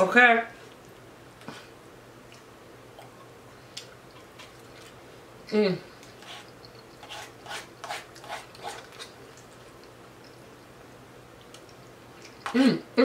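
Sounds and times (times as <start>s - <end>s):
person chewing: 0.7s - 5.0s, 6.0s - 10.8s, 11.4s - 12.6s.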